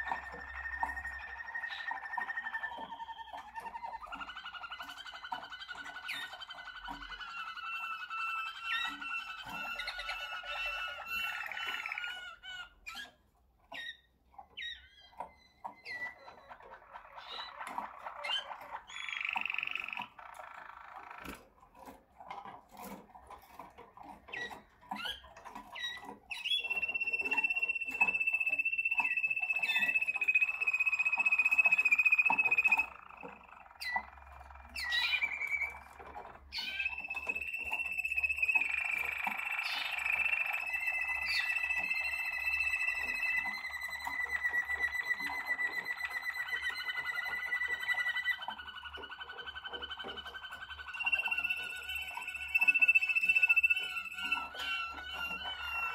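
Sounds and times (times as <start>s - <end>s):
canaries singing: 0.0s - 55.9s.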